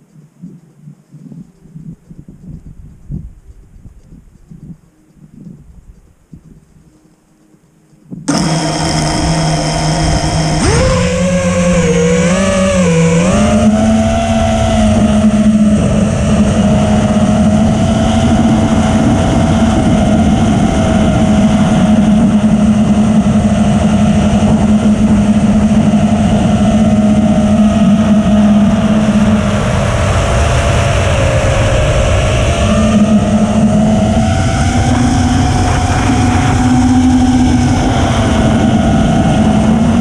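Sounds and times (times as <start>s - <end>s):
wind rush on microphone: 0.0s - 7.0s, 8.0s - 40.0s
drone motors whining: 8.3s - 40.0s.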